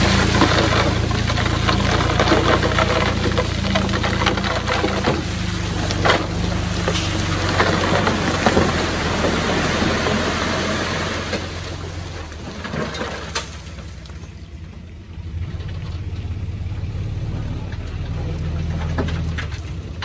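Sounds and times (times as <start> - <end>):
stone and tracks crunching: 0.0 - 13.9
bulldozer diesel engine running: 0.0 - 20.0.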